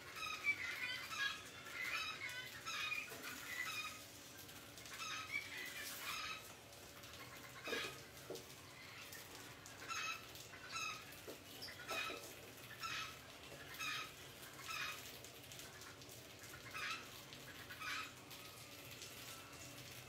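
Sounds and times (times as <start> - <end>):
squeaky animal chirps: 0.1 - 4.0.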